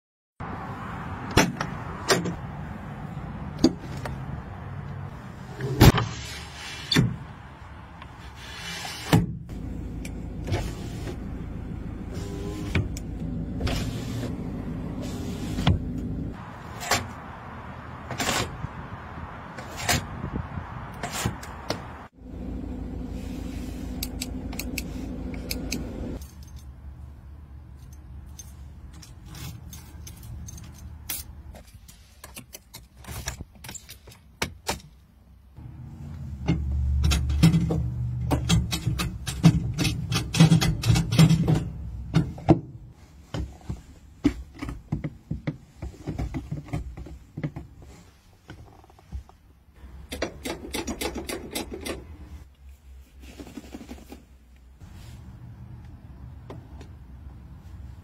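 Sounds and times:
keys jangling: 0:26.2 - 0:26.8, 0:27.7 - 0:31.3.

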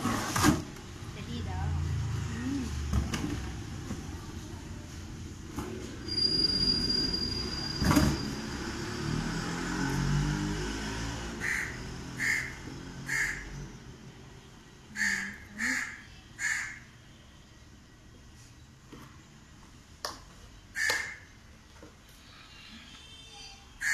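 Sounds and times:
crow cawing: 0:11.4 - 0:13.6, 0:15.0 - 0:16.9, 0:20.8 - 0:21.3.

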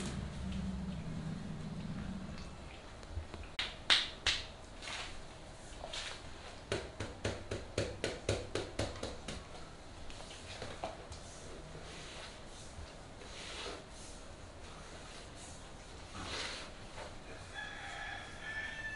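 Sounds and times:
hands slapping on arm: 0:03.6 - 0:04.5
hands snapping: 0:03.6 - 0:04.5.

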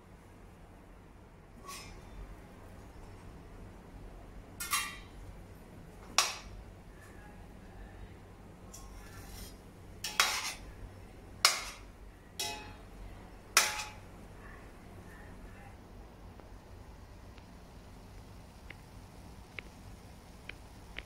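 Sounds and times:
metal ladle clanking on pot: 0:04.6 - 0:05.1, 0:06.2 - 0:06.5, 0:08.7 - 0:10.7, 0:11.4 - 0:12.9, 0:13.5 - 0:14.0.

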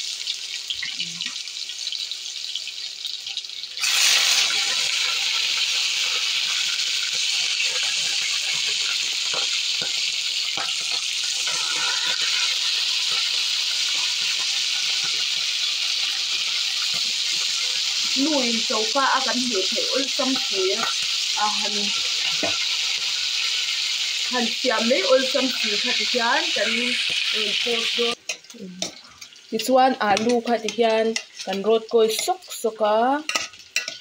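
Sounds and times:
garlic sizzling in oil: 0:00.0 - 0:34.0
meat frying loudly: 0:00.0 - 0:34.0
oil popping and crackling: 0:03.0 - 0:32.4, 0:33.2 - 0:34.0.

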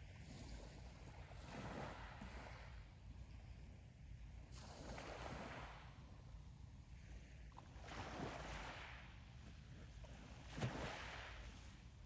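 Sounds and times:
wind rumble on microphone: 0:00.0 - 0:12.0
waves breaking on pebble beach: 0:07.8 - 0:09.1, 0:10.3 - 0:11.8.

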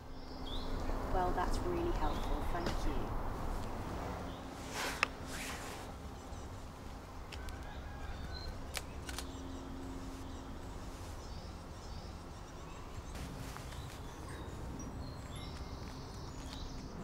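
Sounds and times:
camera shutter clicking: 0:08.7 - 0:09.4.

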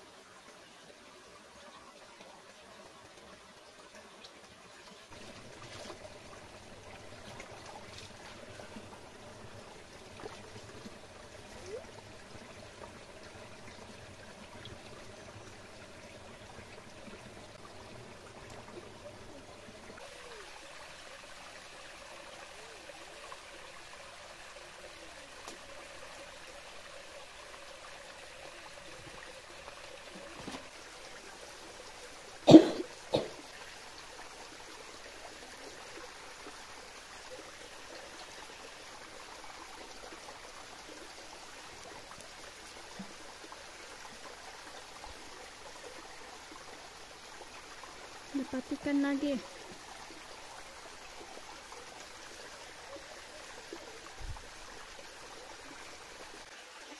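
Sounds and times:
waterfall trickling into pool: 0:00.0 - 0:56.9
person coughing: 0:32.5 - 0:33.4.

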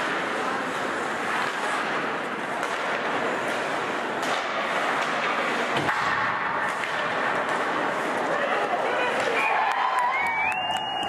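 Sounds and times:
hockey play on ice: 0:00.0 - 0:11.0
crowd murmur: 0:07.2 - 0:11.0.

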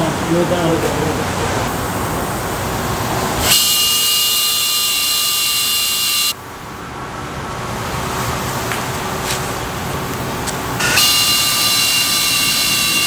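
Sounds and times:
air tool whining: 0:01.7 - 0:06.4, 0:10.7 - 0:13.0.

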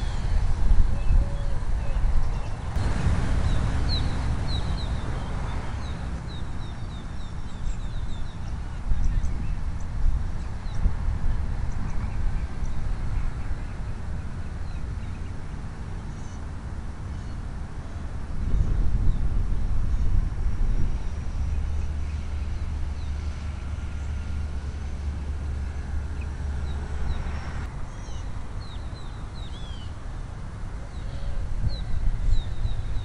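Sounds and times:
wind buffeting microphone: 0:00.0 - 0:33.0
bird chirping: 0:01.0 - 0:09.6, 0:27.9 - 0:30.0.

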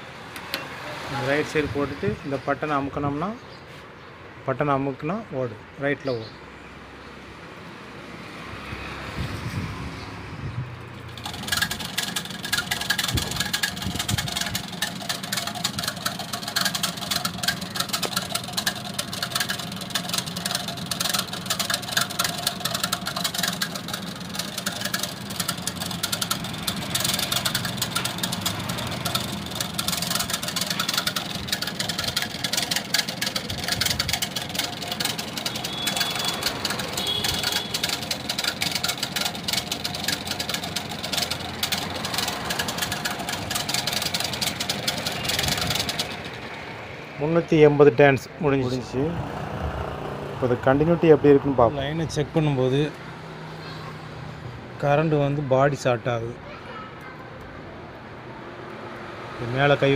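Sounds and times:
coil-winding machine humming and rattling: 0:10.9 - 0:47.2.

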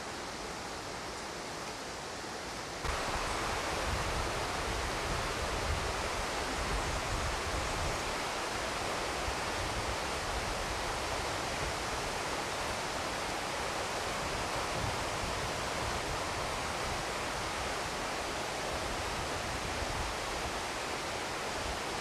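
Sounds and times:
wind buffeting microphone: 0:02.9 - 0:08.4.

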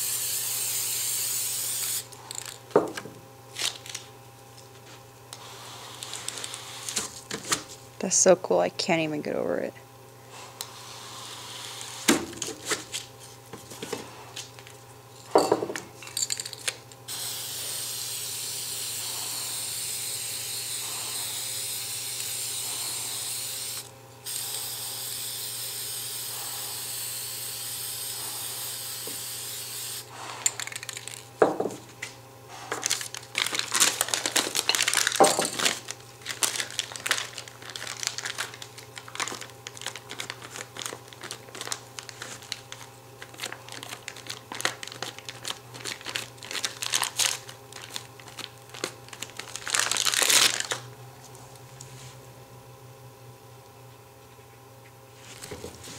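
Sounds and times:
aerosol spray can hissing: 0:00.0 - 0:02.1, 0:17.1 - 0:30.1.

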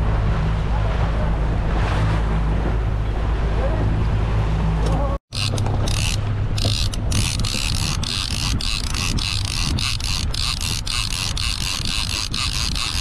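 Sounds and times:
fishing reel gears whirring: 0:05.3 - 0:13.0.

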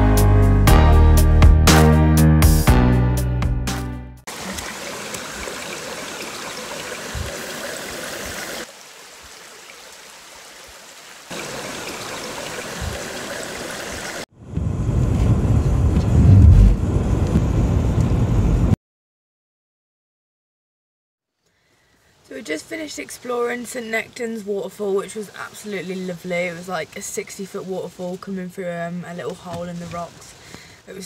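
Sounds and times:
guitar music: 0:00.0 - 0:04.2
waterfall rushing: 0:04.3 - 0:14.3
wind rumbling on microphone: 0:14.4 - 0:18.8.

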